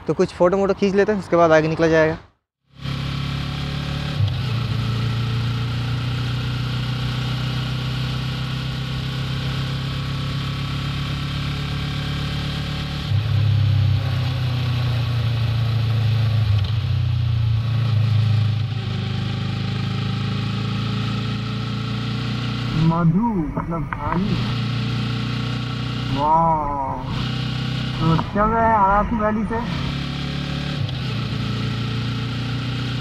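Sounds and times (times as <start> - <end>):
motorcycle engine running: 18.7 - 33.0.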